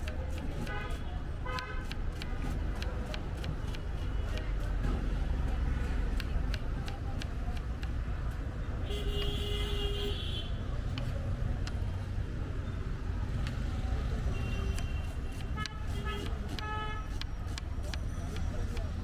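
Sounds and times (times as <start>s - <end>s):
knife chopping on wooden board: 0.0s - 8.1s, 14.7s - 19.0s
street traffic rumble: 0.0s - 19.0s.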